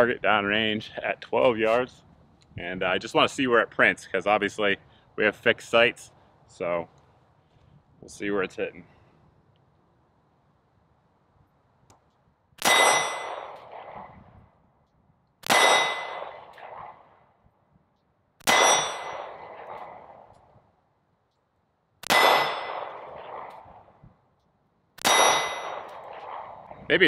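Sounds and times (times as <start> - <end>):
steel target ringing: 12.6 - 13.7, 15.4 - 16.4, 18.4 - 19.4, 22.0 - 23.1, 25.0 - 26.0.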